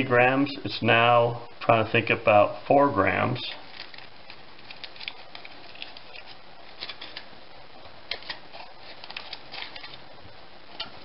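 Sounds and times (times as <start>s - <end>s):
foil crinkling: 3.5s - 11.0s.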